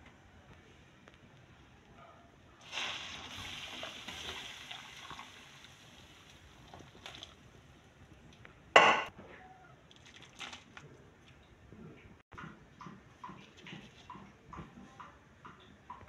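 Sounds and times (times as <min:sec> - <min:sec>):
water hissing in a hot wok: 0:02.6 - 0:07.2.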